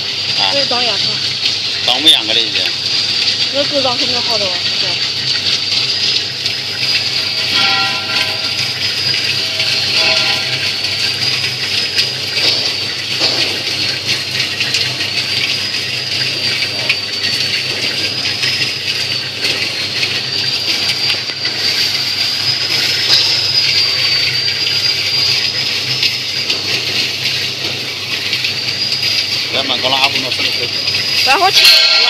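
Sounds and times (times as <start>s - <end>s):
low machine hum: 0.0s - 32.0s
peanuts rattling in rotating pan: 0.0s - 32.0s
thin high wavering whistle: 6.7s - 12.9s, 19.2s - 26.4s.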